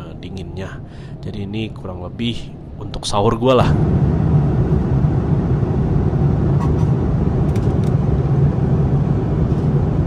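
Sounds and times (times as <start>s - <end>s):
airliner cabin engine noise: 0.0s - 10.0s.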